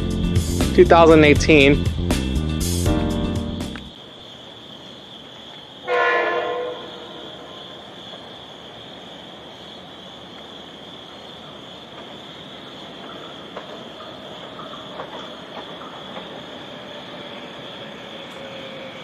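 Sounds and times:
approaching train noise: 0.0s - 19.0s
train horn blast: 5.9s - 7.6s.

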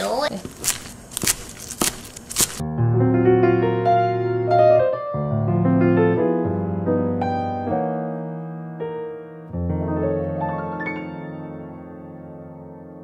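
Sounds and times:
slow piano music: 2.6s - 13.0s.

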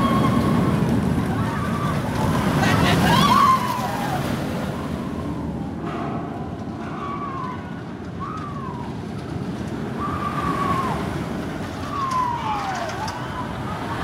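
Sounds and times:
roller coaster rumbling on track: 0.0s - 14.0s
falling tones: 3.0s - 11.2s.

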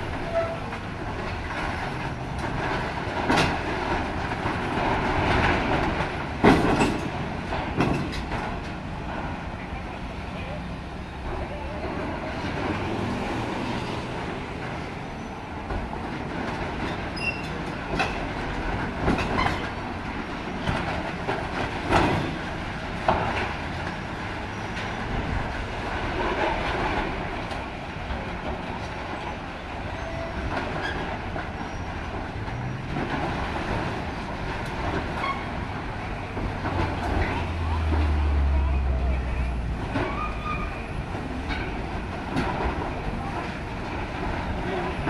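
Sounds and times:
sheet metal clanking and crunching: 0.0s - 9.7s
road traffic passing: 0.0s - 30.0s, 30.7s - 45.0s
diesel engine rumble: 0.0s - 45.0s.

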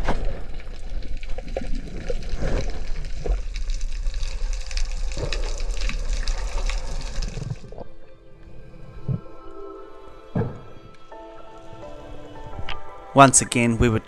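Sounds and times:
small crackles and clicks: 0.0s - 7.9s
water sloshing and bubbling: 0.0s - 13.1s.

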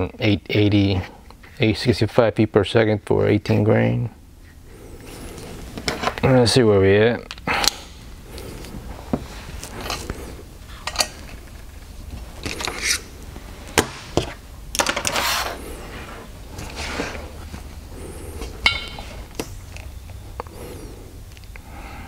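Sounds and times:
hose scraping rustles: 15.1s - 17.7s.

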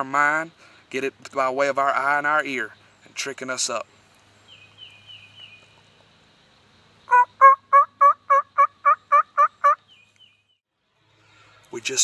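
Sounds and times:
turkey call yelps: 7.1s - 9.8s.

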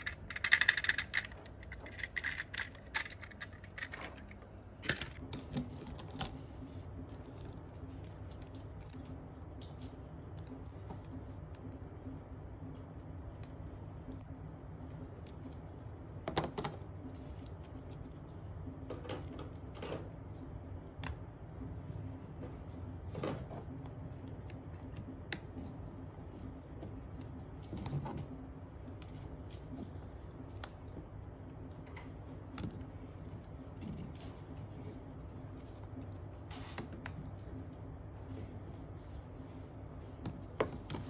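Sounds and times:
plastic toy track clicking together: 0.0s - 5.2s.

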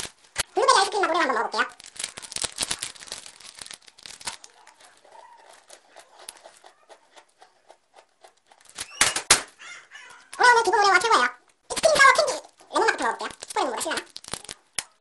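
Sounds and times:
plastic candy wrapper crinkling: 0.0s - 15.0s.

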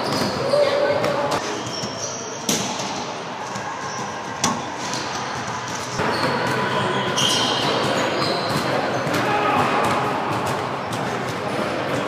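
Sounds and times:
sneaker squeaks on hardwood: 0.0s - 2.6s, 5.9s - 9.3s
racquetball hits echoing: 0.0s - 12.0s.

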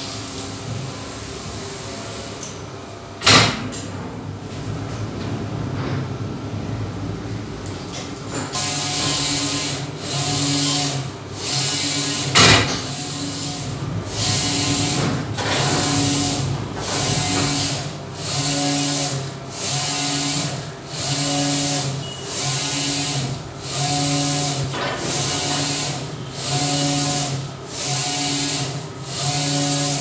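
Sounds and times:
printer carriage motor whirr: 7.6s - 30.0s.

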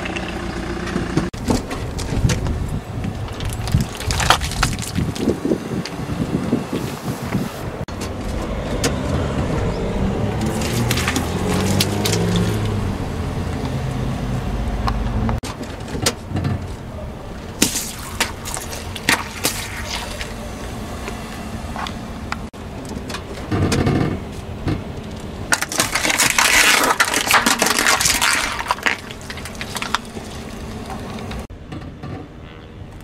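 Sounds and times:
objects crushed under tyre: 3.3s - 5.4s, 10.4s - 12.8s, 17.6s - 20.4s, 25.4s - 31.5s
car engine running low: 7.7s - 15.4s, 28.6s - 31.5s.

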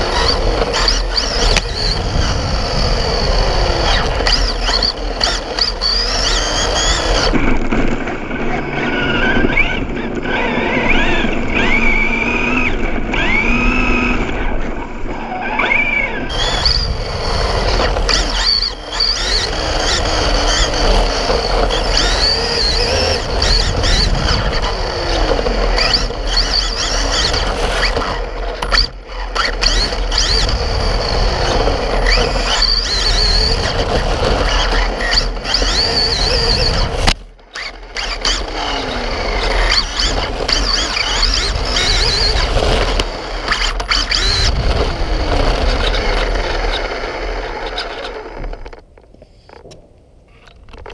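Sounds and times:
rc car motor whining: 0.0s - 49.6s
tyres rumbling on bricks: 16.3s - 49.8s.

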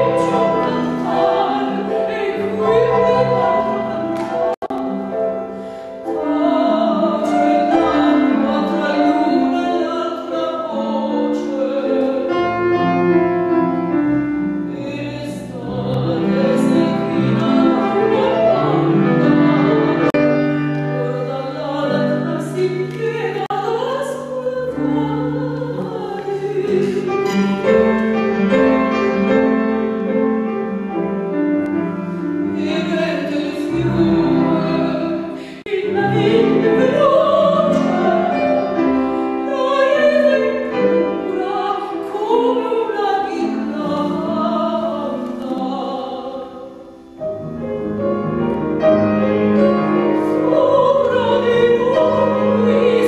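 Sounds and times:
woman singing operatically: 0.0s - 5.2s, 6.2s - 12.6s, 14.7s - 19.7s, 21.0s - 27.4s, 32.6s - 46.7s, 49.6s - 53.0s
piano accompaniment: 0.0s - 53.0s.

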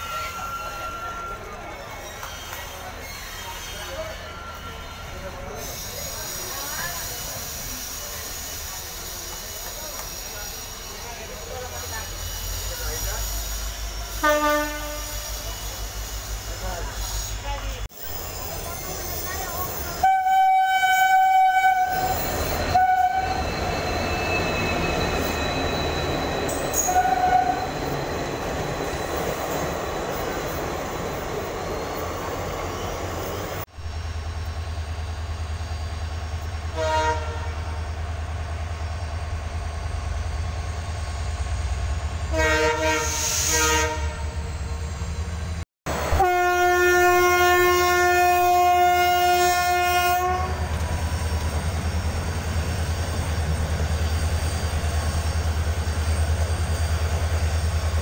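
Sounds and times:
locomotive horn blasts: 14.1s - 15.4s, 20.0s - 23.4s, 36.7s - 37.7s, 42.3s - 44.4s, 46.1s - 50.7s.

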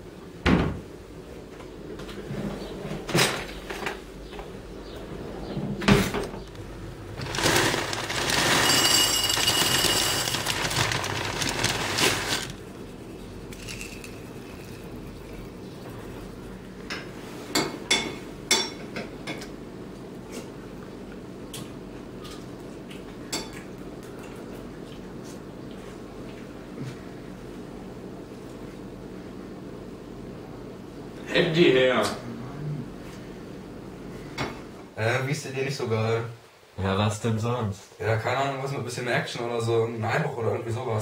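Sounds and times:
pouring into a ceramic bowl: 7.2s - 12.6s.

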